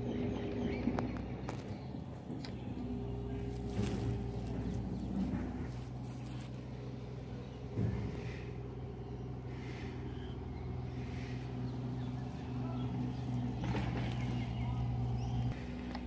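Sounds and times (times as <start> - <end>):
vehicle engine humming: 0.0 - 16.0.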